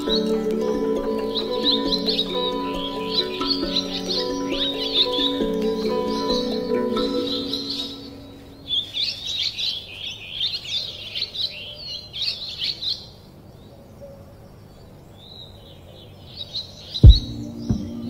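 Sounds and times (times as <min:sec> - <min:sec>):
songbird twittering: 0:00.0 - 0:13.2.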